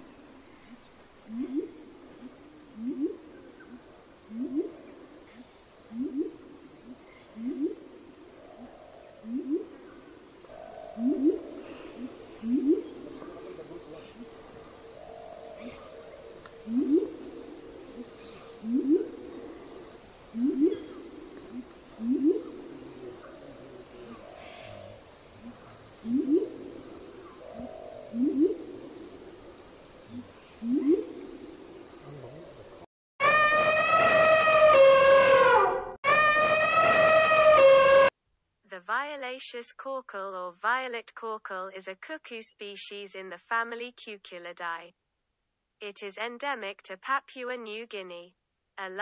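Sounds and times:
birds hooting: 0:00.0 - 0:32.8.

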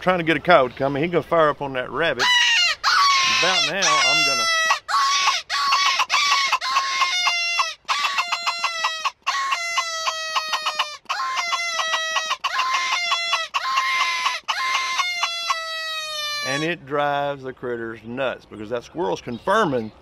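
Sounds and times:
raspy squirrel barking call: 0:02.2 - 0:16.7
rabbit distress call squeals: 0:02.2 - 0:16.8.

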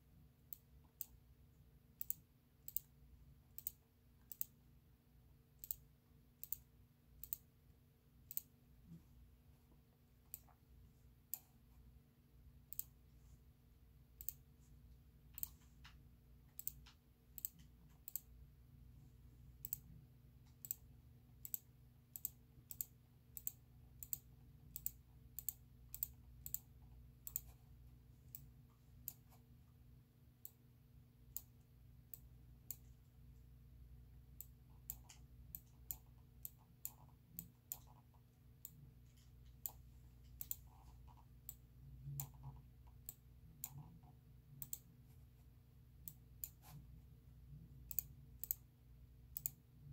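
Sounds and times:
steady low hum: 0:00.0 - 0:49.9
computer mouse clicks: 0:00.5 - 0:01.2, 0:02.0 - 0:04.6, 0:05.6 - 0:07.5, 0:08.2 - 0:08.6, 0:11.2 - 0:11.6, 0:12.7 - 0:13.0, 0:14.2 - 0:14.5, 0:15.2 - 0:18.4, 0:19.6 - 0:29.5, 0:31.3 - 0:33.0, 0:34.4 - 0:44.9, 0:46.0 - 0:46.9, 0:47.8 - 0:48.7, 0:49.3 - 0:49.7.

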